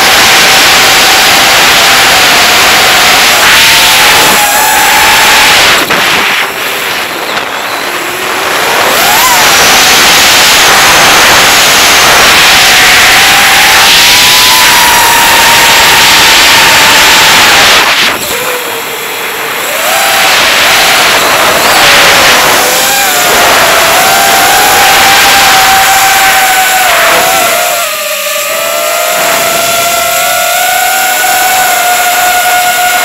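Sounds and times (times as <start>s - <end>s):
quadcopter motors whining: 0.0s - 33.0s
rush of air: 2.6s - 12.8s.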